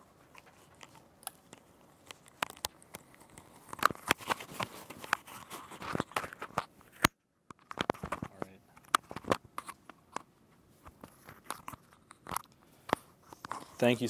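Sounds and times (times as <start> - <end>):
clothing rustle: 3.5 - 7.0.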